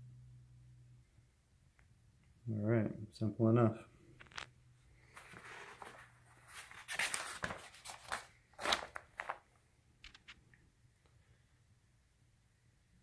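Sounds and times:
paper pages rustling: 4.2 - 10.5.

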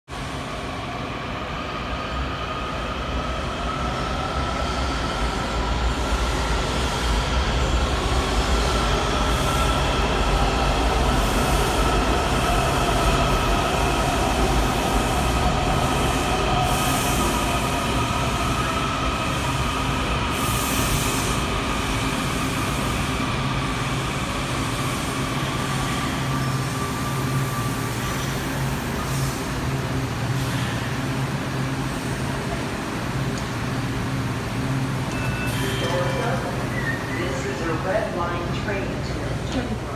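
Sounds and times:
train braking whine: 34.8 - 37.8.

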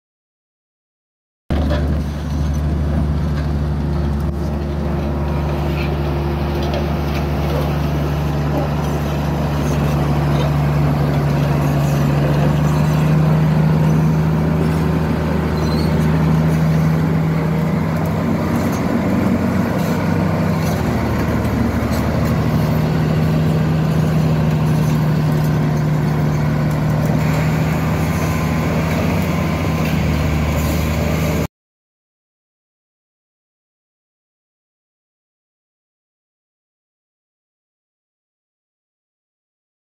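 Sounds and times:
bulldozer diesel engine running: 1.5 - 31.5.

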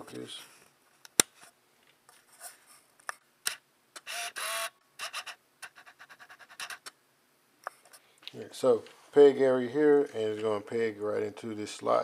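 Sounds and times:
lens motor whir: 3.5 - 5.4.

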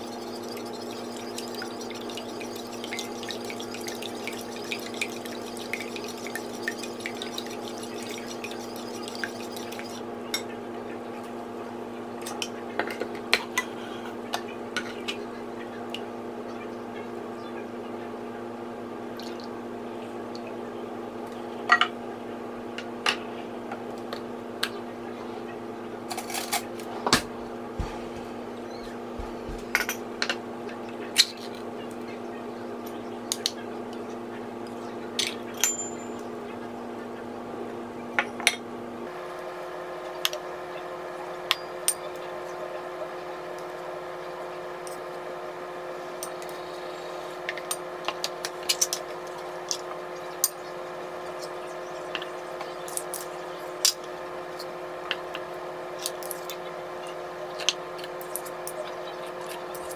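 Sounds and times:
steady background tone: 0.0 - 10.1
spoon clinking on ceramic bowls: 35.2 - 36.2.

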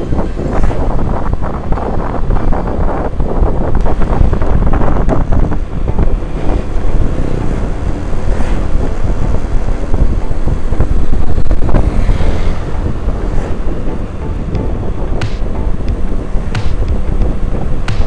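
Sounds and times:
scooter engine: 0.0 - 18.0
wind buffeting microphone: 0.0 - 18.0.

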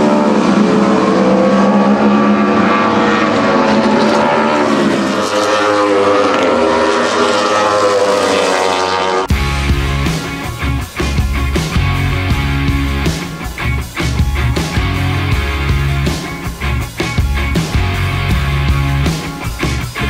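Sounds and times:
race car engines revving: 0.0 - 20.0
music: 9.3 - 20.0.

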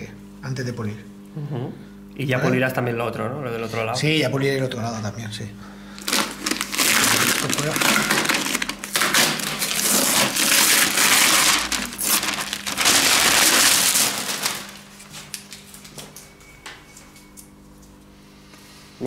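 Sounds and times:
masking paper crinkling: 6.0 - 16.0.

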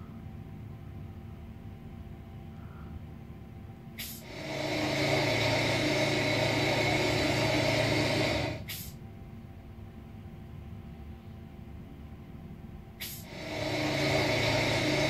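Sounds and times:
diesel engine idling: 4.0 - 8.9, 13.0 - 15.0
loud steady machine noise: 4.0 - 9.0, 13.0 - 15.0
short air hiss: 4.0 - 9.0, 13.0 - 15.0.

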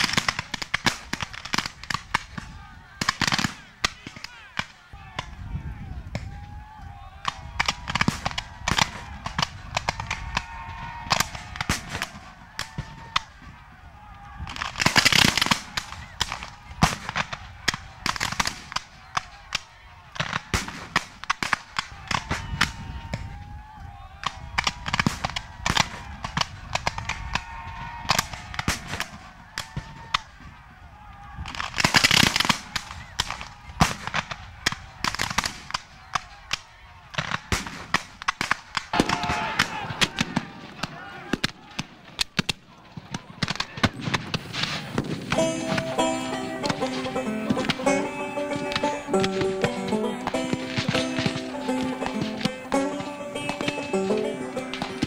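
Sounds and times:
musket single shots: 0.0 - 5.3, 7.2 - 10.5, 11.1 - 13.4, 14.5 - 22.8, 31.5 - 45.6.

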